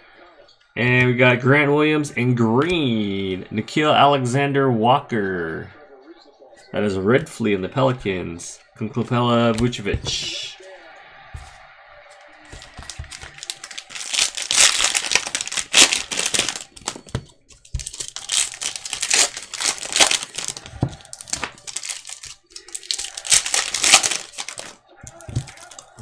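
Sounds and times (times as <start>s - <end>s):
foil wrapper crinkling and tearing: 12.5s - 26.0s.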